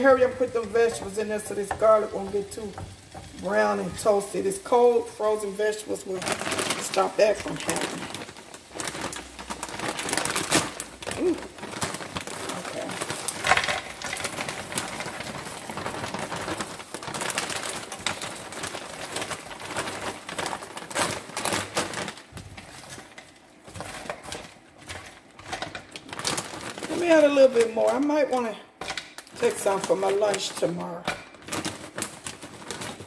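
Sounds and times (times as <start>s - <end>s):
vegetables sizzling in a pan: 0.0s - 26.0s
plastic bag crinkling: 0.0s - 33.0s.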